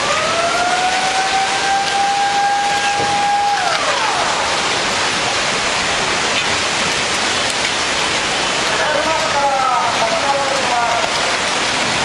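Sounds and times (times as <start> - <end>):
warning siren: 0.0 - 5.2
floodwater roaring: 0.0 - 12.0.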